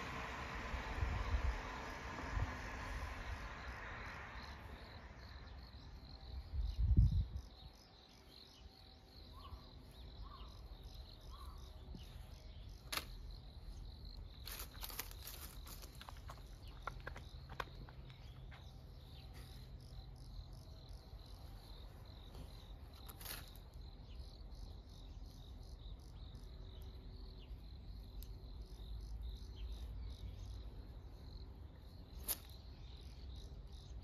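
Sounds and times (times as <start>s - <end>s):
broad rushing noise: 0.0s - 5.2s
crickets chirping: 0.0s - 34.0s
small sharp clicks: 12.8s - 13.2s, 28.1s - 28.4s.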